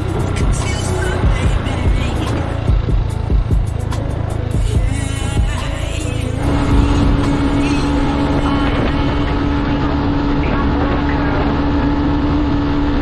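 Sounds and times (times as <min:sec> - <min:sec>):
motorcycle engine running: 0:00.0 - 0:13.0
wind noise on microphone: 0:06.4 - 0:13.0.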